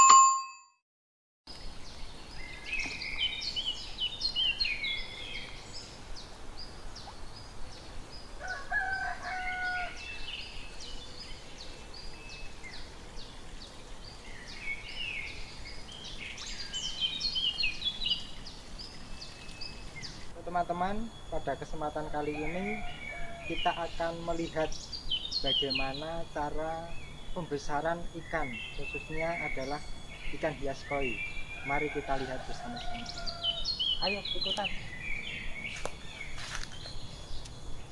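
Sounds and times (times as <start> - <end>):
birds chirping: 1.5 - 37.9
rooster crowing: 8.4 - 10.4, 22.1 - 23.8, 31.4 - 33.8.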